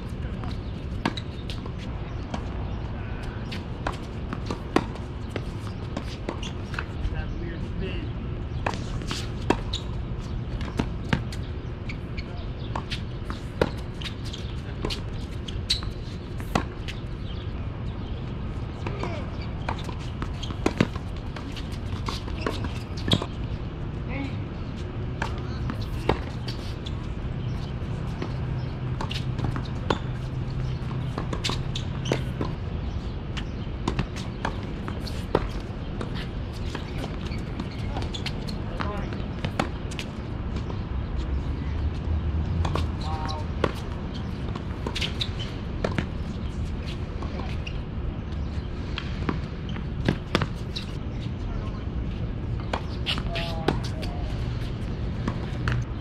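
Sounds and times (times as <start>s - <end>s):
tennis ball bouncing: 3.4s - 7.0s, 8.5s - 11.5s, 12.6s - 17.4s, 18.8s - 23.6s, 24.7s - 40.8s, 42.5s - 47.8s, 48.4s - 51.0s, 52.6s - 55.9s.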